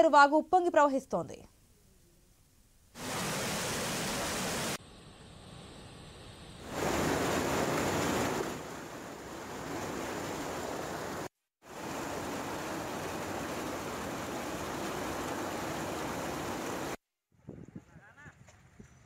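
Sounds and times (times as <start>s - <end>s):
floodwater rushing: 3.0s - 4.8s, 6.6s - 17.0s.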